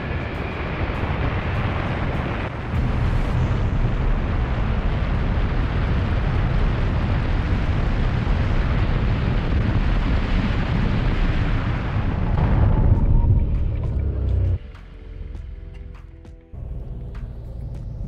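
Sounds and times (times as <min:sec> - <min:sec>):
car wind and road noise: 0:00.0 - 0:18.0.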